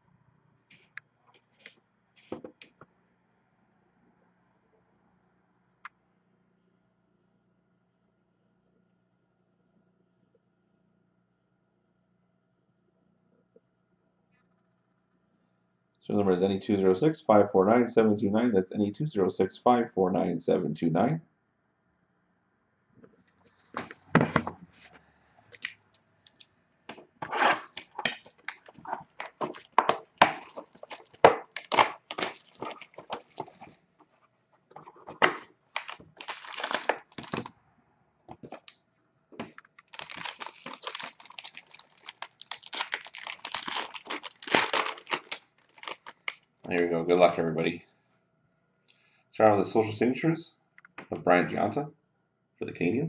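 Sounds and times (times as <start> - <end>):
hands tearing wrapping: 26.9 - 33.8, 34.9 - 37.5, 38.4 - 38.8, 39.4 - 46.5.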